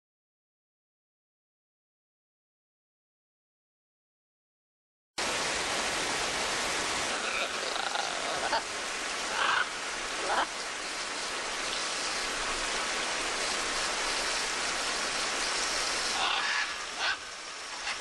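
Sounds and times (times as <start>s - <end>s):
steady rain: 5.2s - 18.0s
macaw squawks: 9.3s - 10.5s, 16.2s - 17.2s.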